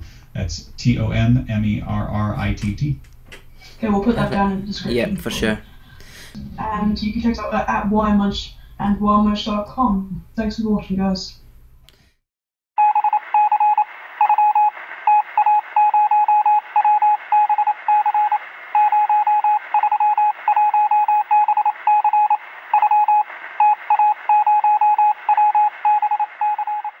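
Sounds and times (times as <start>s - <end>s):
morse code beeping: 12.8s - 27.0s
radio static hiss: 13.7s - 15.8s, 21.7s - 24.3s.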